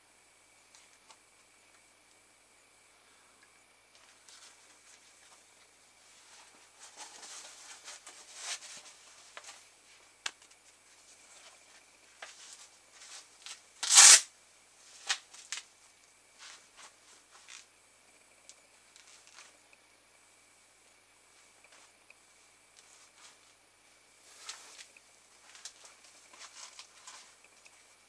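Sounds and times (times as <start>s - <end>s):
velcro strap rasp: 13.8s - 14.3s.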